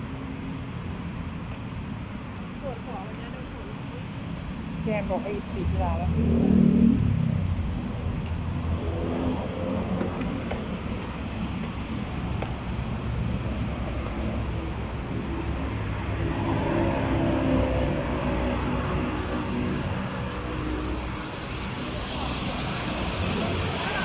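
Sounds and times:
vehicles passing on road: 0.0s - 24.0s.

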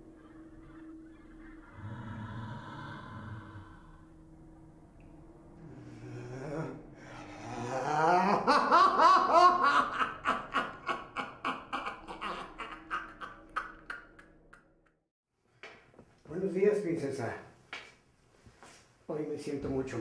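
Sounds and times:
old man laughing menacingly: 0.1s - 2.8s, 5.9s - 14.6s.

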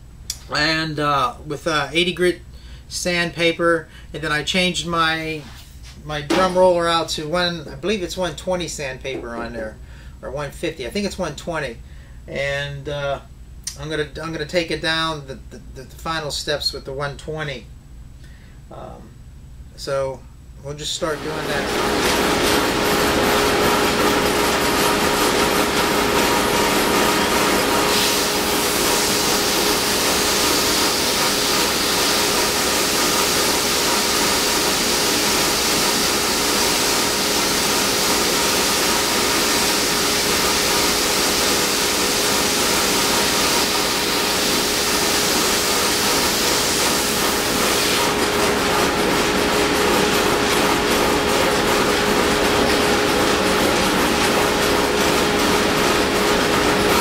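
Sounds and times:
machine hum: 17.7s - 57.0s
sanding hiss: 27.2s - 48.2s.

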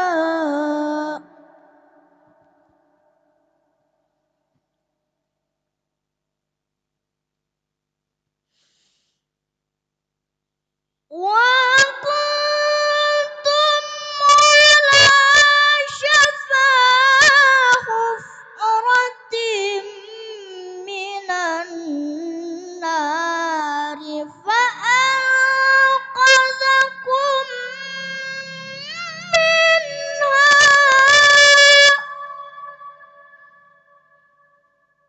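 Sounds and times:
boy reciting melodically: 0.0s - 1.6s, 11.2s - 33.4s.

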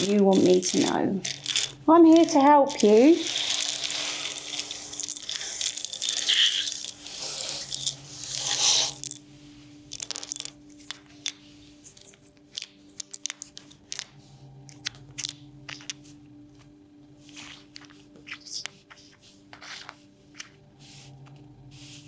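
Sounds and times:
tiles clicking set down: 0.0s - 6.9s, 12.0s - 14.0s
letter tiles clattering on a table: 0.0s - 9.2s, 9.9s - 14.1s, 14.7s - 16.1s.

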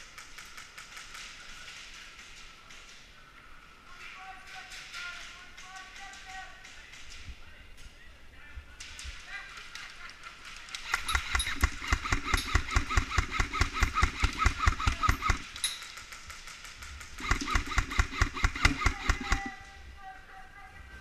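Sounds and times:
airsoft rifle full-auto fire: 10.7s - 19.7s.

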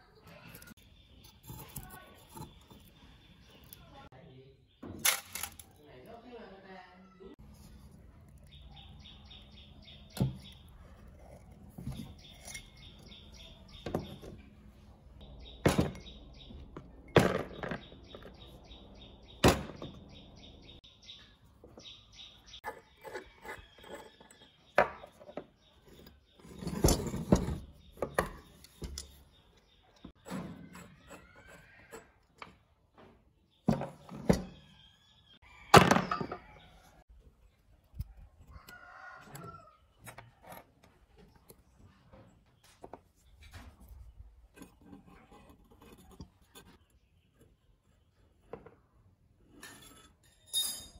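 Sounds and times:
birds chirping: 5.7s - 32.0s, 33.0s - 44.2s
metal and glass knocks and clunks: 15.5s - 18.6s.

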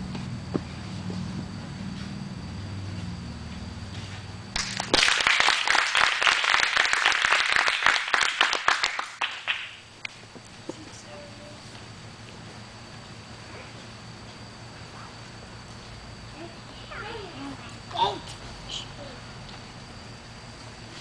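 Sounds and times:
crowd applauding: 4.6s - 9.8s.

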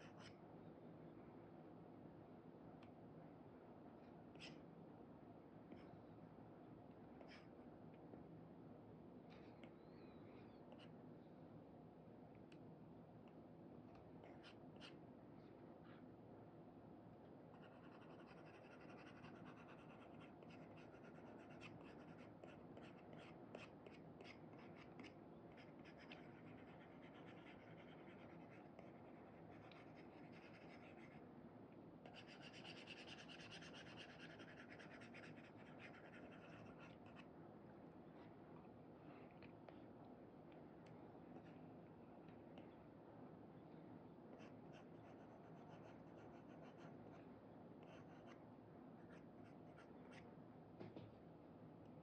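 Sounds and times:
stylus scratching on screen: 17.6s - 31.2s, 32.1s - 37.2s.

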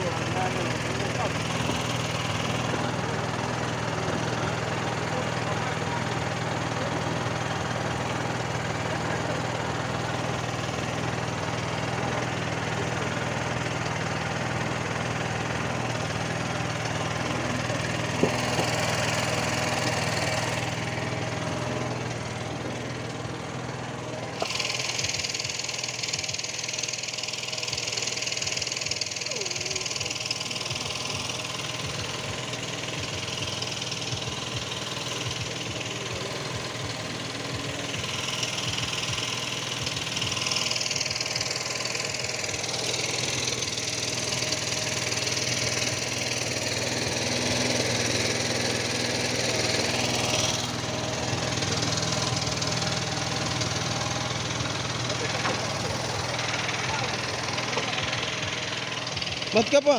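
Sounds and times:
small engine idling: 0.0s - 59.9s.

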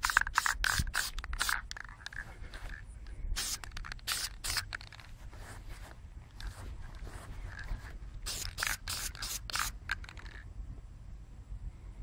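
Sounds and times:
spray can hissing bursts: 0.0s - 1.6s, 3.4s - 4.8s, 7.0s - 10.4s.

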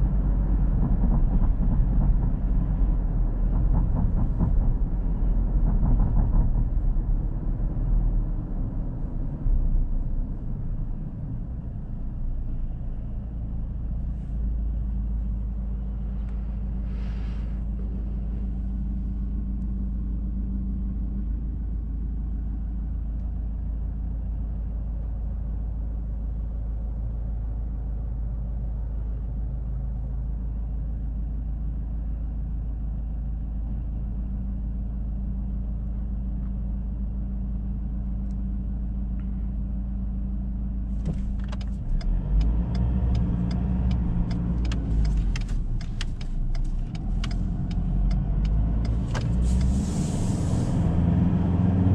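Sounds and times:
engine idling: 0.0s - 42.4s, 43.1s - 50.9s
engine and road rumble: 0.0s - 51.9s.

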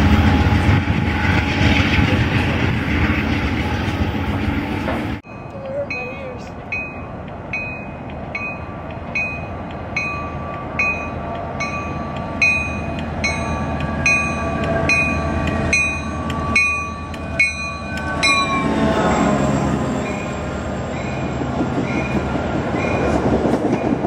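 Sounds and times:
diesel locomotive engine and whine: 0.0s - 24.0s
bell ringing steadily: 5.2s - 18.9s.

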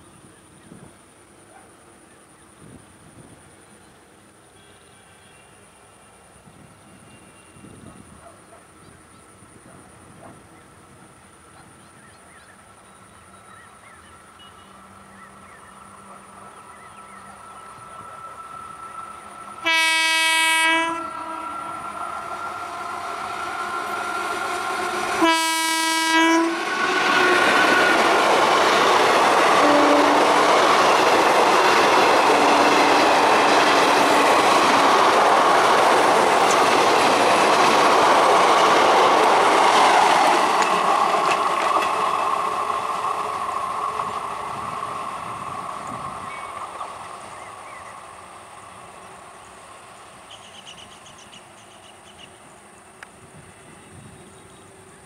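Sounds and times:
train running past: 0.0s - 55.0s
train horn blasts: 4.6s - 6.0s, 14.4s - 14.9s, 19.4s - 28.5s, 29.4s - 30.5s, 31.8s - 34.4s.

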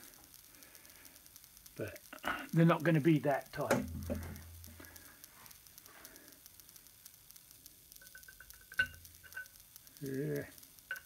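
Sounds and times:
spanner clinking on metal: 8.0s - 9.6s.

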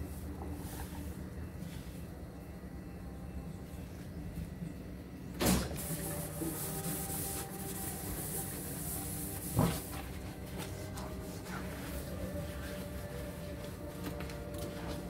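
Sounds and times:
steady low hum: 0.0s - 15.0s
sponge scrubbing a steel sink: 5.8s - 14.0s.

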